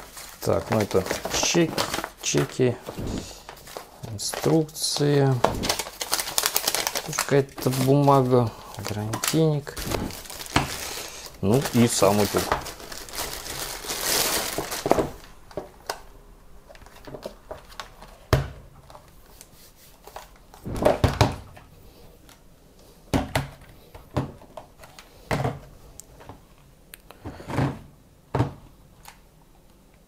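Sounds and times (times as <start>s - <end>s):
plastic bag crinkling: 5.5s - 15.3s.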